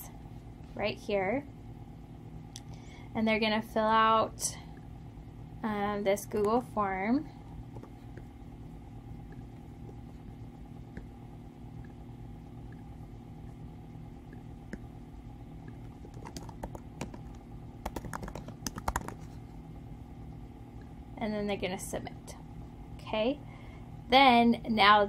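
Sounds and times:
steady low hum: 0.0s - 25.0s
typing on computer keyboard: 16.0s - 19.2s.

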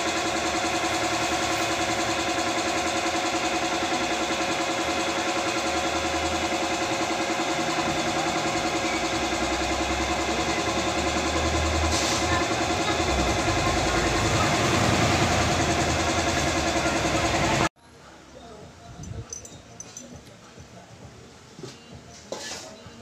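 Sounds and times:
small engine idling: 0.0s - 17.7s.

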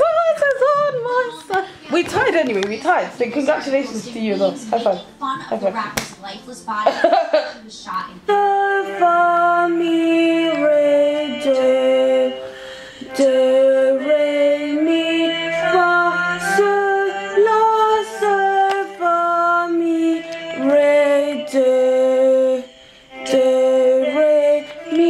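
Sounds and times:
woman singing vocal scales: 0.0s - 2.1s, 8.2s - 25.0s.

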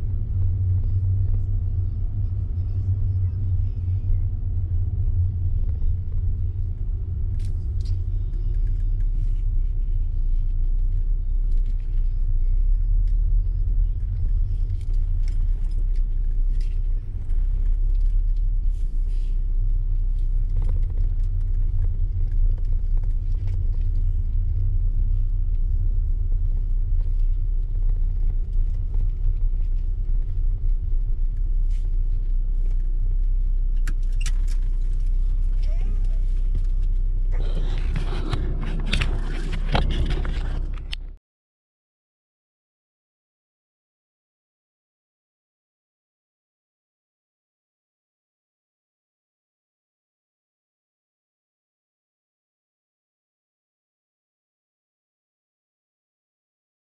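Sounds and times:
car engine and road noise: 0.0s - 41.2s.

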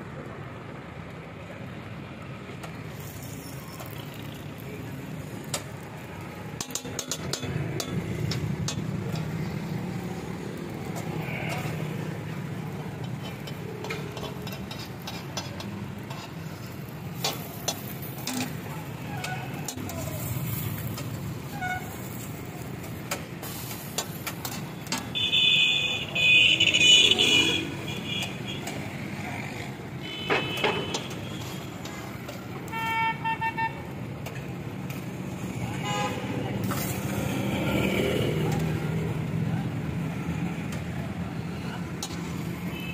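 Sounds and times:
traffic hum: 0.0s - 42.9s
vehicle horns honking: 25.1s - 28.7s, 30.0s - 31.6s, 32.7s - 33.9s, 35.8s - 36.3s.

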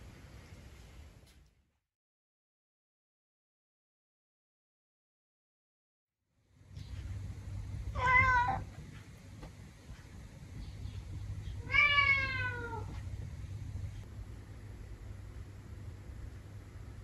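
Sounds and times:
steady low hum: 6.4s - 17.0s
cat meowing: 7.9s - 8.7s, 11.6s - 13.0s.

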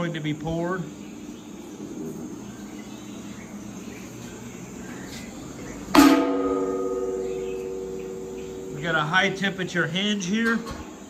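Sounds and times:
metallic clang ringing: 5.9s - 10.9s.

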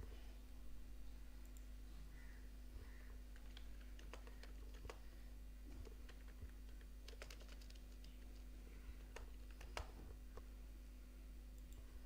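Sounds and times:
low steady hum: 0.0s - 12.0s
computer keyboard keystrokes: 3.3s - 5.0s, 5.7s - 10.0s.

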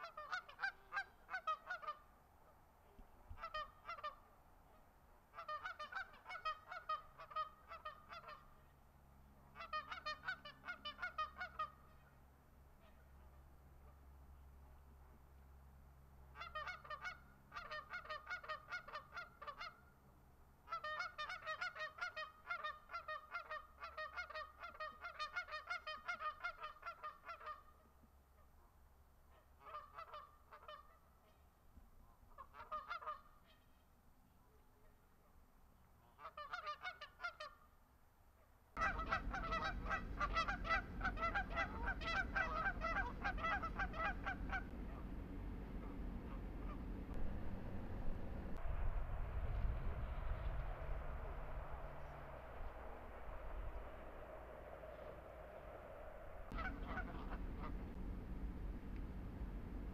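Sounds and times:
geese honking: 0.0s - 2.1s, 3.4s - 4.3s, 5.3s - 8.7s, 9.5s - 12.1s, 16.4s - 19.8s, 20.7s - 27.7s, 29.3s - 31.4s, 32.3s - 33.6s, 38.8s - 48.0s, 50.6s - 58.0s
low rumbling noise: 38.8s - 59.9s.

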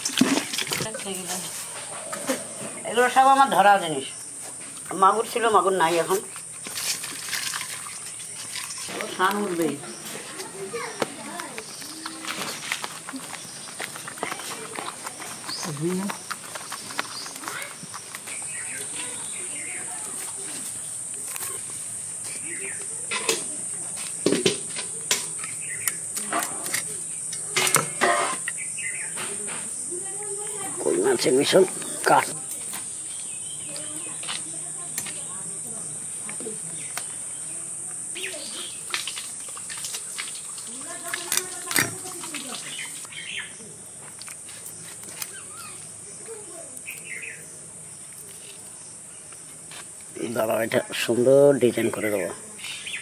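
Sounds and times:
high insect chirr: 0.0s - 53.0s
bird chirps: 44.8s - 47.6s.

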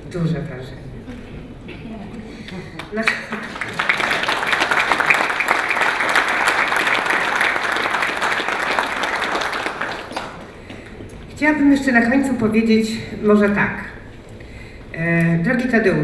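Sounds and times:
audience applause: 2.8s - 10.7s.

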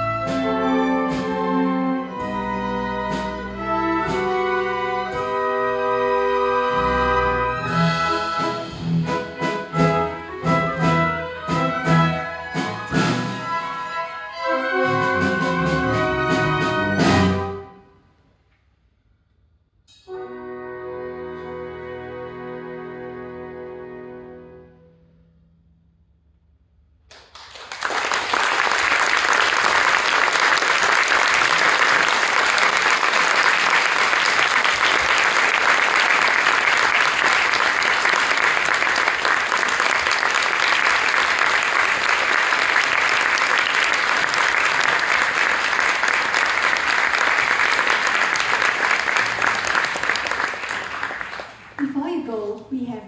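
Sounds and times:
audience applause: 27.1s - 51.9s.

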